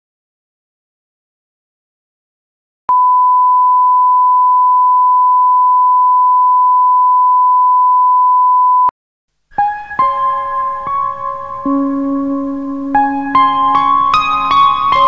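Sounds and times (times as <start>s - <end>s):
music with sustained notes: 9.6s - 15.0s.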